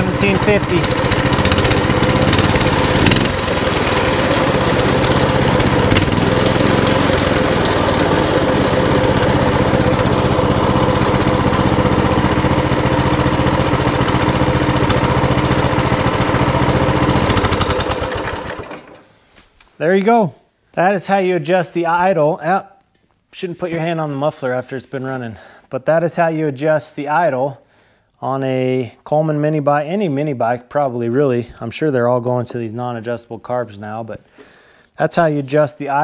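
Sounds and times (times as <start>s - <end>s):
small engine idling: 0.0s - 19.0s.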